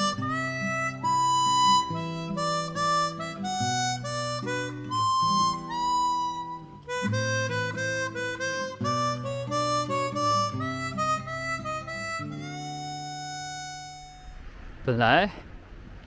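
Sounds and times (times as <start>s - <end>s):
harmonica slow melody: 0.0s - 14.5s.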